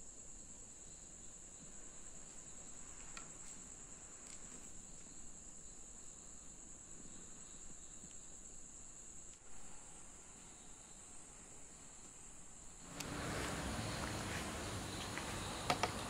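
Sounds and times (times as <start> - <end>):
crickets chirping: 0.0 - 16.0.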